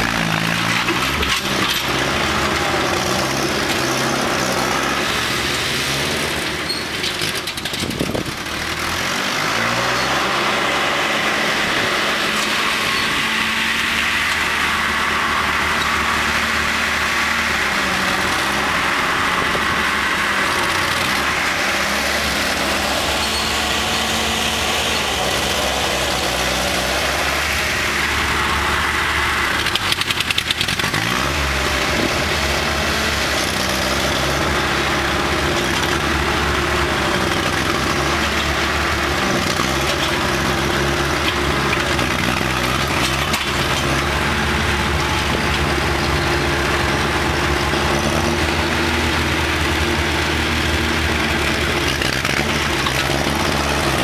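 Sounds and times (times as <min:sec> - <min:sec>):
engine running steadily: 0:00.0 - 0:54.0.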